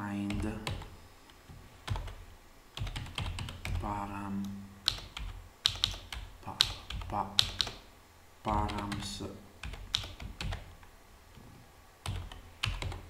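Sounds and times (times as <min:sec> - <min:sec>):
typing on computer keyboard: 0:02.8 - 0:03.8, 0:04.8 - 0:07.8, 0:09.6 - 0:10.7, 0:12.0 - 0:13.0.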